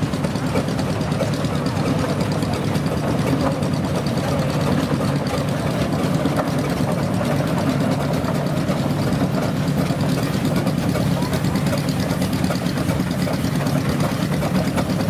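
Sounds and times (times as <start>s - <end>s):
steam engines running: 0.0s - 15.0s.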